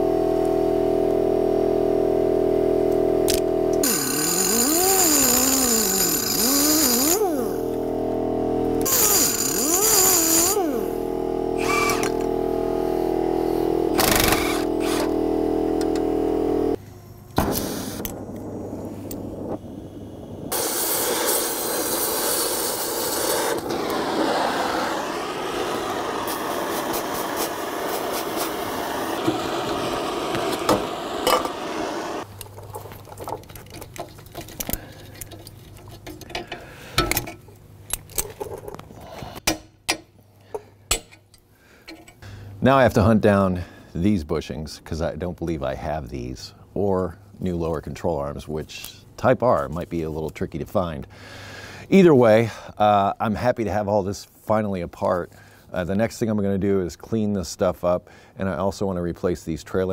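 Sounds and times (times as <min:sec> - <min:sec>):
air cutoff tool cutting: 0:02.9 - 0:16.8, 0:20.5 - 0:32.3
torch flame hissing: 0:03.8 - 0:07.6, 0:08.8 - 0:11.0, 0:17.5 - 0:32.3
sharp pop: 0:17.4 - 0:18.2.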